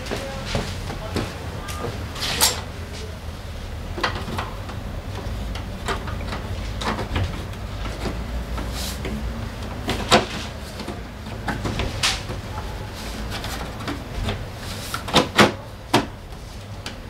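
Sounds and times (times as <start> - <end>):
plastic panels knocking and clicking: 3.9 - 12.5, 13.2 - 16.2.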